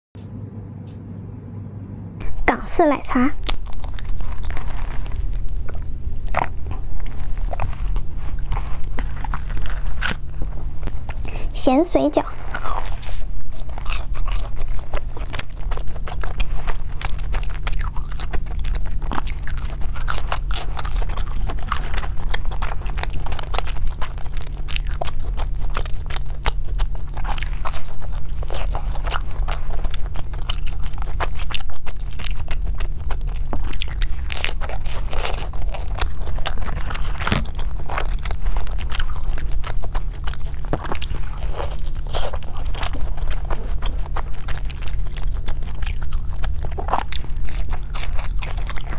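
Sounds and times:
steady low hum: 0.2 - 48.9
wet sticky chewing: 2.2 - 48.9
crispy fried skin crackling: 3.1 - 48.9.

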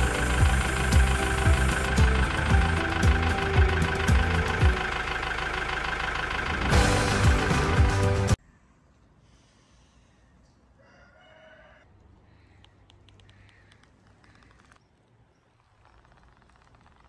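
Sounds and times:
faint rooster crow: 10.7 - 12.7.

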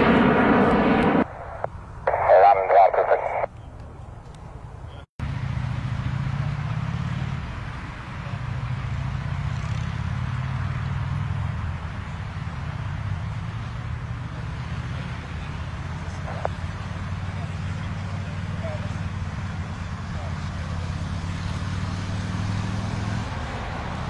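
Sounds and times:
low hum: 0.0 - 3.5
distant jet engine noise: 0.0 - 24.0.

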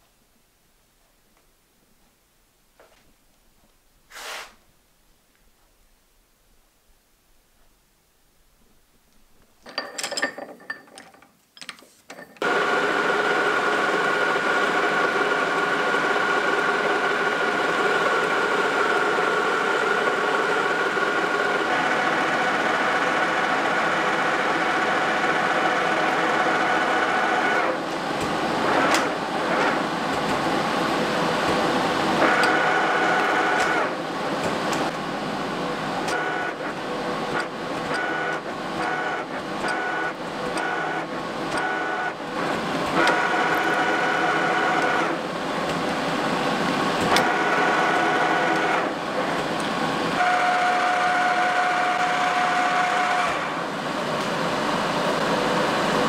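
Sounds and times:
handling clicks and knocks: 9.6 - 12.4
metal lathe running with gear whine: 12.4 - 56.0.

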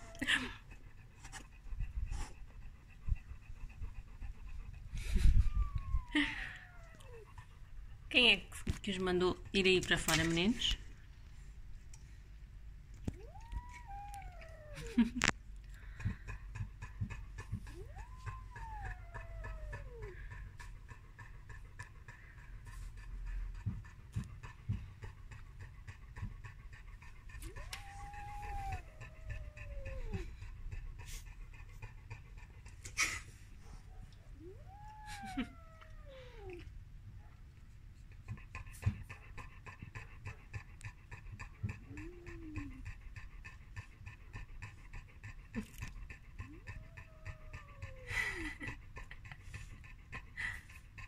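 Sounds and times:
dog panting: 0.0 - 51.0
long high-pitched cry: 5.0 - 7.4, 13.1 - 15.3, 17.7 - 20.4, 27.4 - 30.4, 34.4 - 36.6, 46.4 - 48.7
faint cry: 5.2 - 7.2, 34.4 - 36.6.

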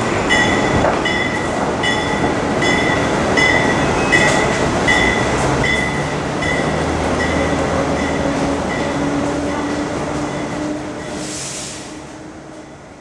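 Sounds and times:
trains rumbling on track: 0.0 - 13.0
burst of hiss: 11.2 - 12.0.

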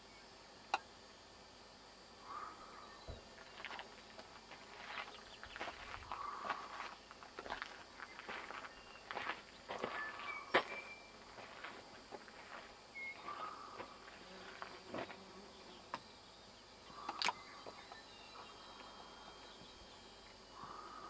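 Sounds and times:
sharp clicks: 17.0 - 17.4.

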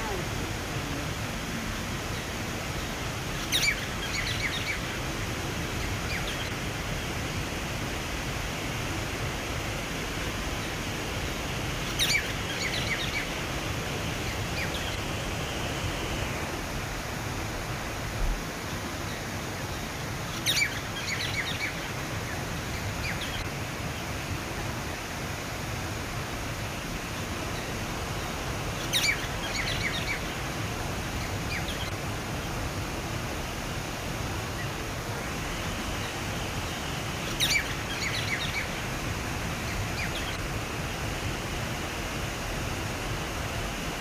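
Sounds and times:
bird chirping: 3.4 - 4.9, 11.8 - 13.3, 20.3 - 21.8, 28.8 - 30.3, 35.5 - 38.8.

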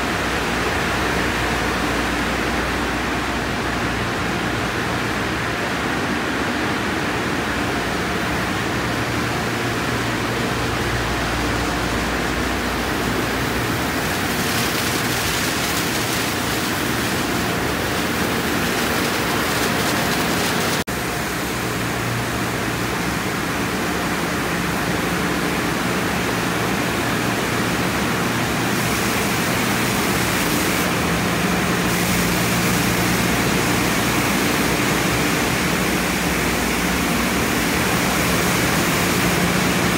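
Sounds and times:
pumps and motors humming: 7.5 - 39.9
spraying water and brushes: 13.0 - 20.9.

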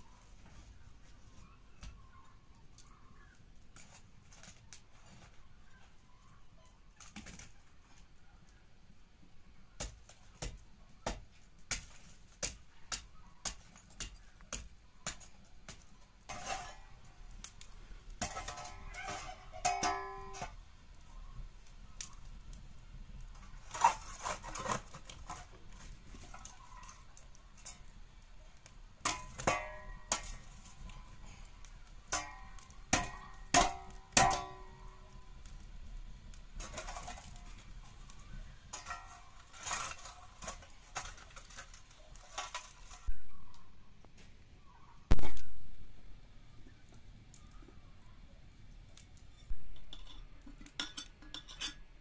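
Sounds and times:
metal scraper raking embers on brick: 9.8 - 43.2, 49.0 - 51.9.

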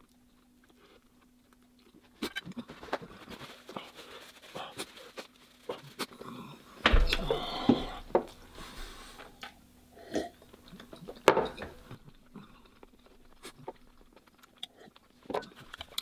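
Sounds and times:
man breathing and mouth sounds: 2.4 - 11.2.

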